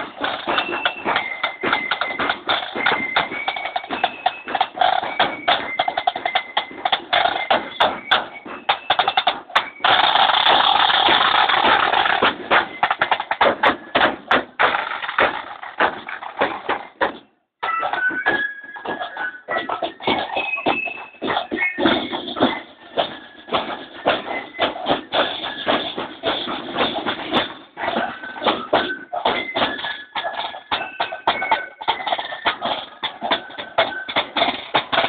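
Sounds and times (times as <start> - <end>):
flutes playing a tune: 0.0 - 13.4, 17.6 - 26.0
bass drum: 0.0 - 17.2
snare drum: 0.0 - 35.0.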